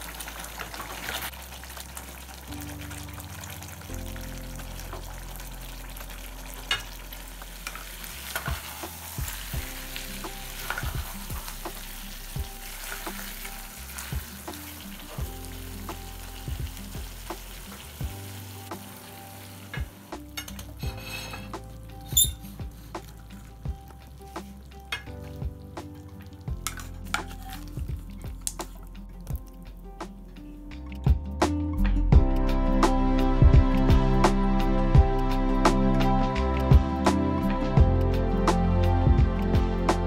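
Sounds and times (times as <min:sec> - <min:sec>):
curry sizzling in a pan: 0:00.0 - 0:29.9
wooden spatula stirring and scraping: 0:20.7 - 0:29.6.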